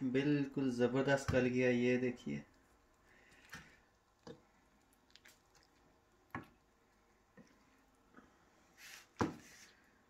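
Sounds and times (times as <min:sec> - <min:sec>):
soft taps and squishes in metal tray: 0:01.0 - 0:08.3.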